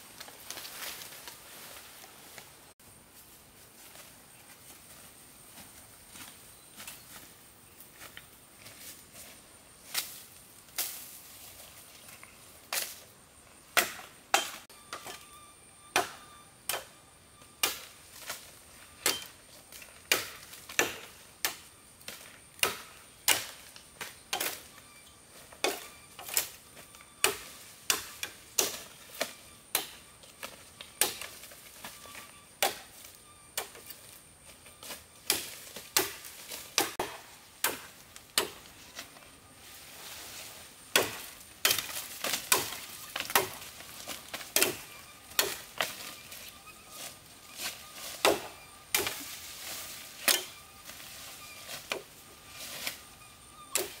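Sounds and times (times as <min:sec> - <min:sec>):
hand tool striking wood: 0:13.8 - 0:15.3, 0:15.9 - 0:17.0, 0:19.0 - 0:19.4, 0:20.0 - 0:24.7, 0:25.5 - 0:26.6, 0:27.2 - 0:33.9, 0:35.2 - 0:38.7, 0:40.9 - 0:46.1, 0:48.1 - 0:49.4, 0:50.2 - 0:50.6.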